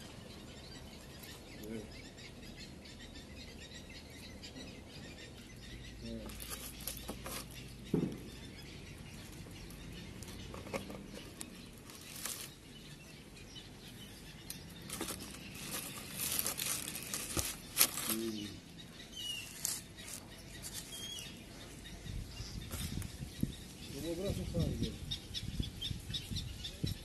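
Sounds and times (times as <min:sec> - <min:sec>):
faint bird chirps: 0:00.0 - 0:27.0
carton handling clicks and rustles: 0:06.2 - 0:08.2, 0:09.1 - 0:12.6, 0:14.6 - 0:18.5.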